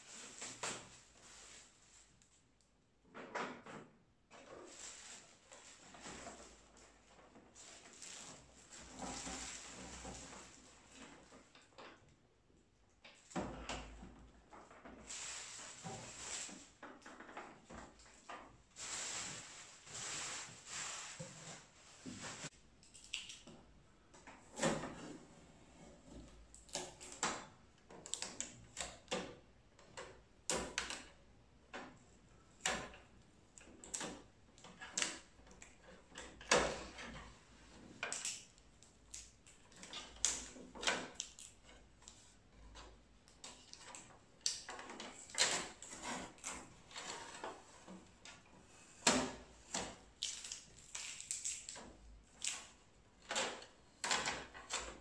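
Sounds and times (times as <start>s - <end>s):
packing tape peeling: 50.2s - 52.7s.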